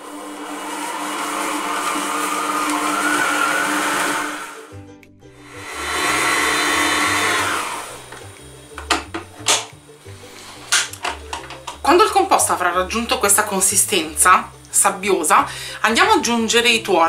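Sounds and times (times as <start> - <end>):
stand mixer motor humming: 0.0 - 4.7, 5.4 - 8.4
background music with bass: 4.6 - 17.0.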